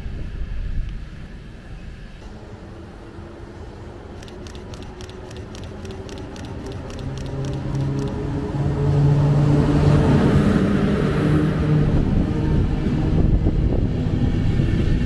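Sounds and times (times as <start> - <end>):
train hum and rolling noise: 0.0 - 15.0
faint high ticking: 4.2 - 8.2.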